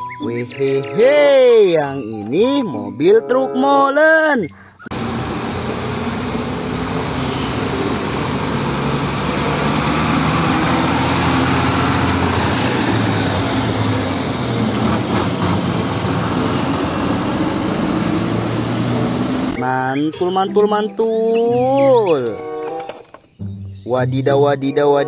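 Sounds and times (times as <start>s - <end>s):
road traffic: 4.6s - 19.6s
truck diesel engine passing: 4.9s - 19.6s.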